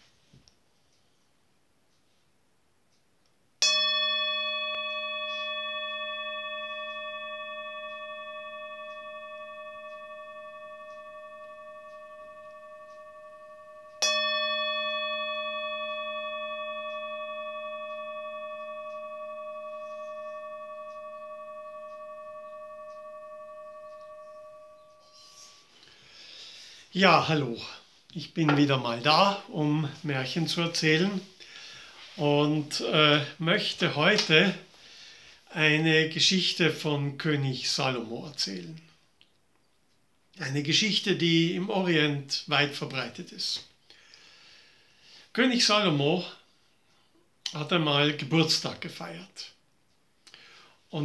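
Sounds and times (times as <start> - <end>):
singing bowl struck and ringing: 3.6 - 27.8, 28.4 - 34.7.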